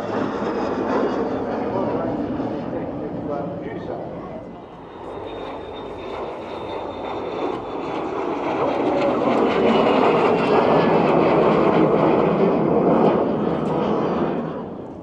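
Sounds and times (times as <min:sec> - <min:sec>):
jet aircraft flying past: 0:00.0 - 0:15.0.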